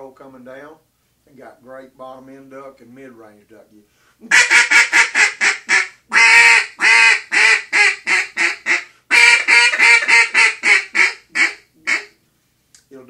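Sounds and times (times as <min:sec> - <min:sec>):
duck call quacks: 0:04.2 - 0:12.2.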